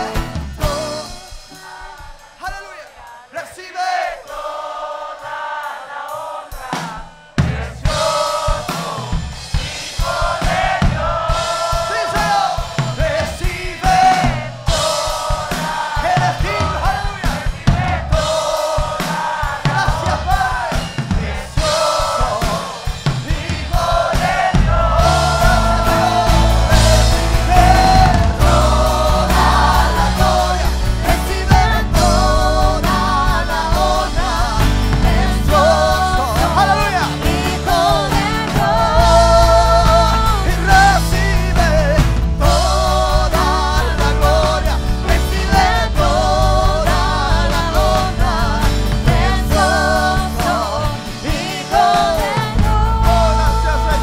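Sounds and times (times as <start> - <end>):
man singing lead: 0.0 - 4.4, 6.1 - 54.0
drums and full band: 0.0 - 54.0
woman singing backing vocals: 24.2 - 41.8, 42.8 - 54.0
acoustic guitar: 24.7 - 54.0.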